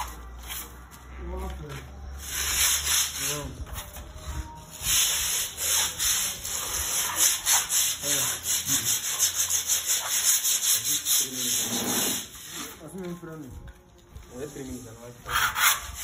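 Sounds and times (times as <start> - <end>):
trowel scraping plaster on wall: 4.8 - 12.8, 15.2 - 16.0.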